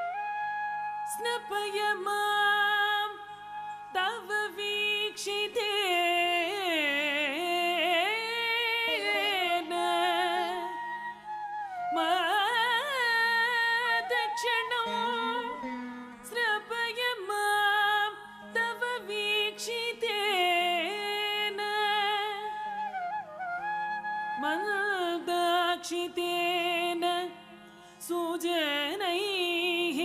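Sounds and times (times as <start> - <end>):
person singing: 5.2 - 10.8.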